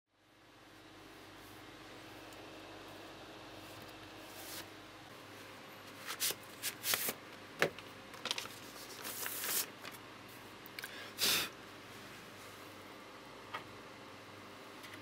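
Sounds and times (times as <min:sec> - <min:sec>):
record sleeve rustling: 0:05.9 - 0:10.0.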